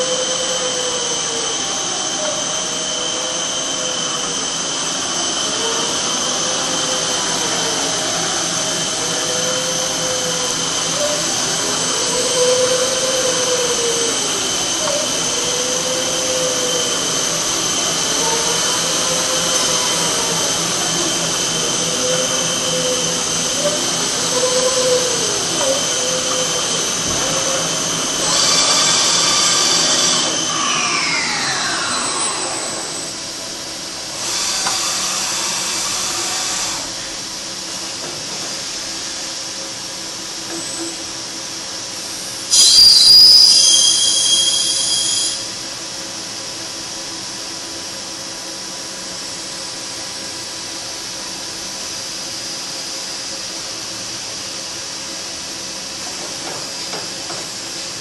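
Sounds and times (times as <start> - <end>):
milling machine spindle whine: 0.0 - 58.0
loud hissing: 42.4 - 45.5
whistle-like tones: 42.5 - 45.5.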